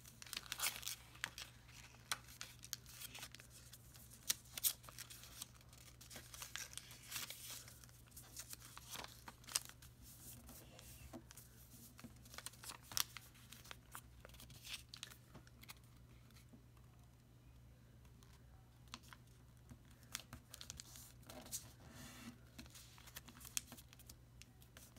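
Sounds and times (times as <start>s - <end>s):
paper crinkling and rustling: 0.0s - 16.4s
paper crackles: 0.1s - 16.4s.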